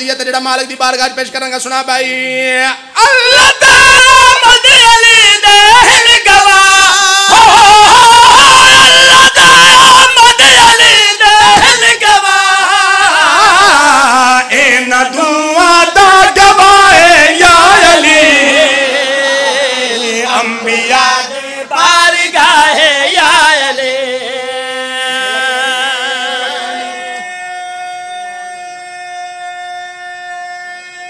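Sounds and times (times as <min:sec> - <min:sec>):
men chanting together: 0:10.7 - 0:27.2.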